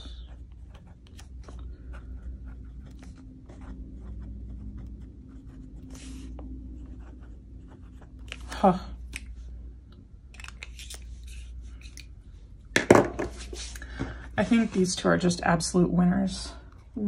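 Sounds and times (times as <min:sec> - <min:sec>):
pen scratching on paper: 0:00.0 - 0:08.5.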